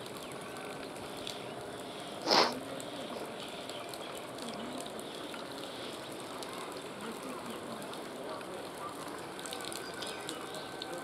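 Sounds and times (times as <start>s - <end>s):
light rain hissing: 0.0s - 11.0s
short harsh burst: 2.2s - 2.6s.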